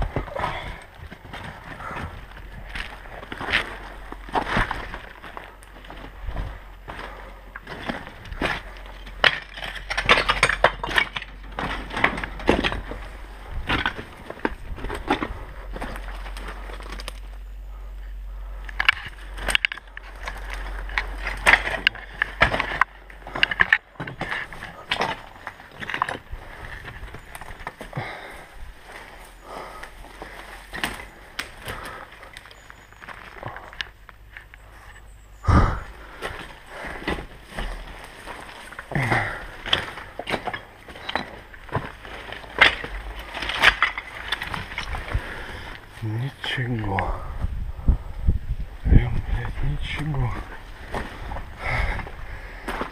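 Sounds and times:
footsteps and crunches: 0:00.0 - 0:52.9
low rumble: 0:00.0 - 0:52.9.

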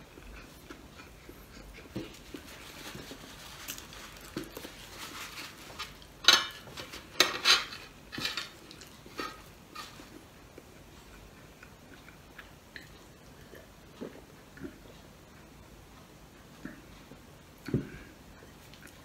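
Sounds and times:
plate and utensils scraping: 0:05.2 - 0:10.1
metal utensils clinking: 0:05.4 - 0:10.0.

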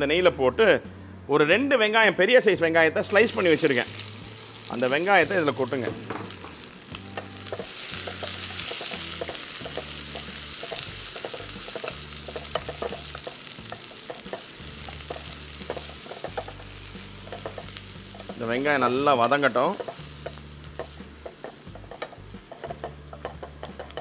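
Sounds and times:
onions sizzling in hot fat: 0:03.0 - 0:24.0.

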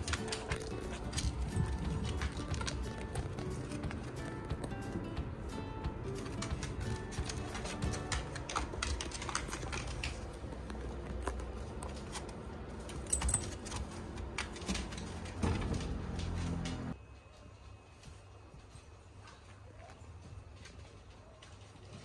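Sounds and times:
dog claws clicking on wooden floor: 0:00.0 - 0:04.7, 0:06.2 - 0:16.9.

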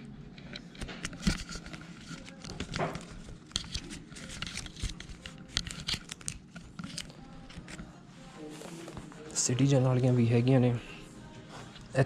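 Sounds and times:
crinkling: 0:00.8 - 0:09.4.

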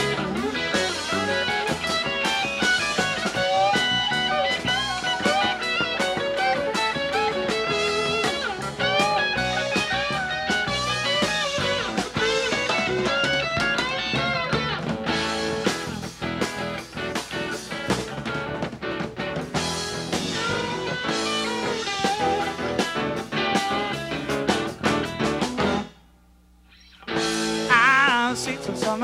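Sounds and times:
electric guitar solo: 0:00.0 - 0:25.9, 0:26.7 - 0:28.9
bass guitar: 0:00.0 - 0:29.0
drums: 0:00.0 - 0:29.0.

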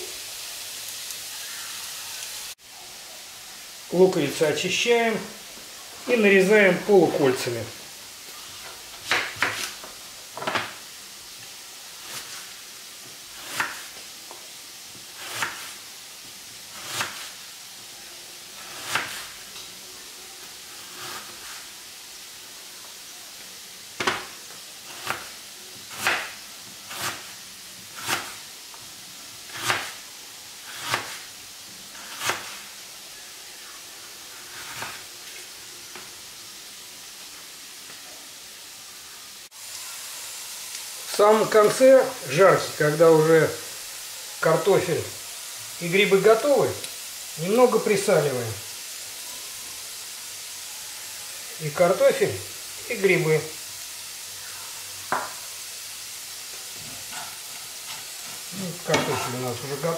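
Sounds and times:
frying sizzle: 0:00.0 - 0:59.9
knife slicing onion on board: 0:09.0 - 0:09.8, 0:13.3 - 0:14.0, 0:14.9 - 0:15.8, 0:16.8 - 0:17.4, 0:18.6 - 0:19.3, 0:25.9 - 0:28.4, 0:29.5 - 0:30.0, 0:30.7 - 0:31.3, 0:32.0 - 0:32.6, 0:57.1 - 0:59.3.

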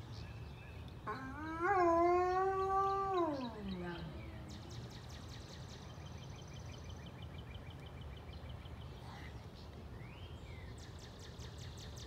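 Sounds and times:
wolfdog howling: 0:01.1 - 0:04.1.

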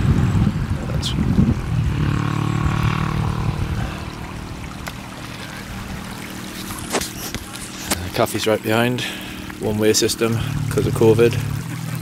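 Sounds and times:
wind buffeting microphone: 0:00.0 - 0:08.3
engine hum: 0:00.0 - 0:12.0.

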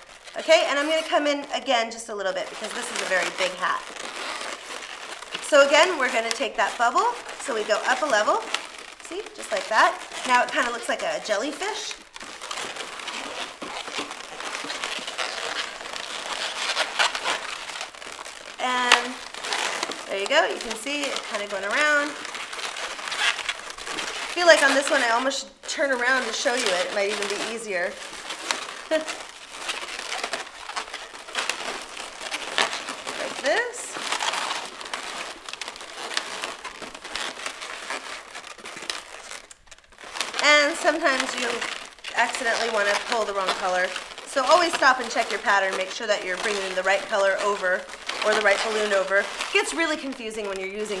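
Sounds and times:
balloons rubbing and squeaking: 0:00.0 - 0:51.0.

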